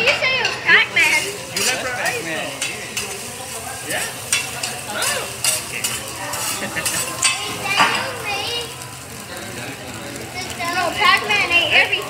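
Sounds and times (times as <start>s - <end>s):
metal spatulas scraping griddle: 0.0s - 3.3s, 4.0s - 8.2s
rice sizzling on griddle: 0.0s - 12.0s.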